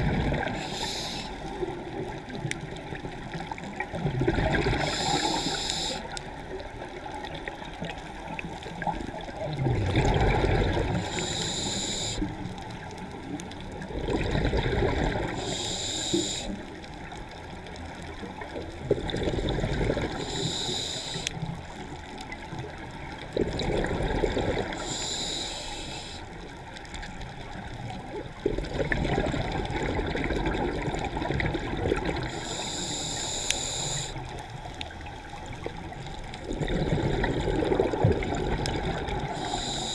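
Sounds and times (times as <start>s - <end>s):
exhaled bubbles gurgling: 0.0s - 39.9s
regulator hissing inhale: 0.4s - 1.6s, 4.8s - 6.2s, 10.9s - 12.5s, 15.2s - 16.7s, 20.1s - 21.5s, 24.6s - 26.4s, 32.2s - 34.5s, 39.2s - 39.9s.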